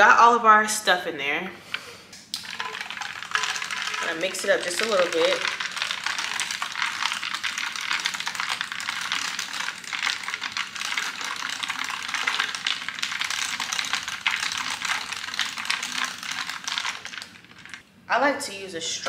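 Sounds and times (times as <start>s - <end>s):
spoon clinking ice in cup: 2.4s - 7.6s.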